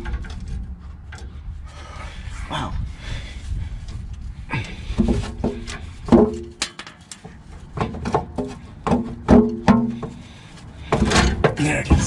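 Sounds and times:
sharp metal knocks: 5.0s - 10.2s.

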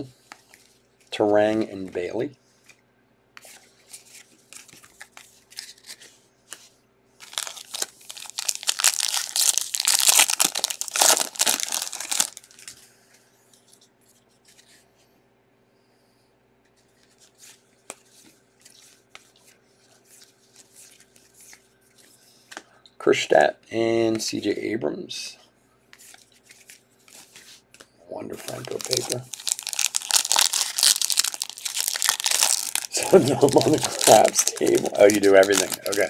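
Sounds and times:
foil wrapper tearing and crinkling: 7.2s - 12.7s, 28.4s - 36.0s.

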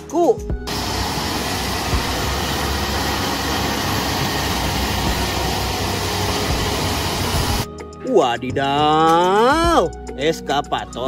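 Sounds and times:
excavator diesel engine running: 0.7s - 7.7s.

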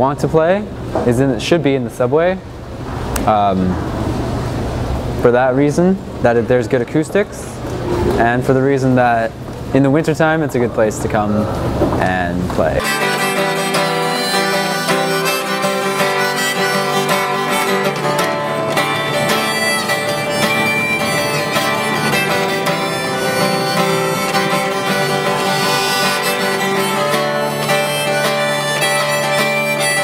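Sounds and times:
acoustic guitar: 11.0s - 30.0s
harmonica: 12.8s - 30.0s.

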